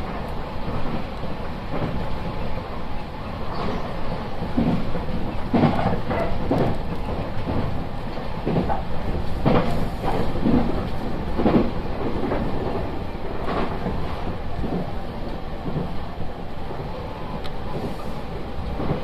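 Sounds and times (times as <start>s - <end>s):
train rumbling: 0.0s - 19.0s
wheel clacks over rail joints: 4.4s - 16.0s.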